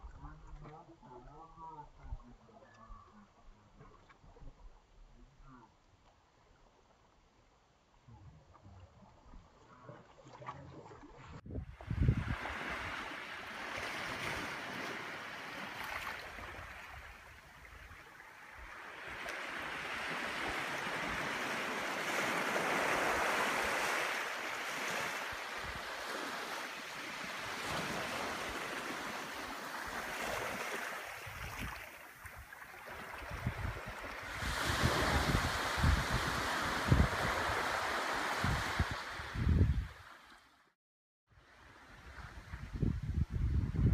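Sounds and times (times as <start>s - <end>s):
waves washing on beach: 11.8s - 40.3s.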